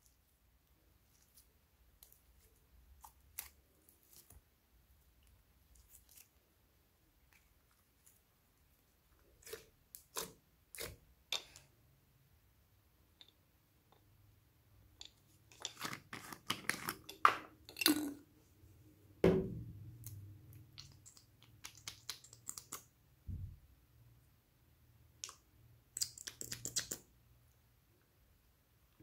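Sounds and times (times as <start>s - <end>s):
low thump: 19.2s - 19.8s.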